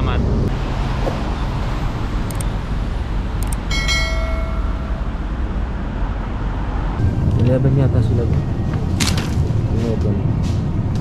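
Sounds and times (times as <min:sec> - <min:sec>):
traffic rumble: 0:00.0 - 0:11.0
bell-like metallic ring: 0:03.7 - 0:05.4.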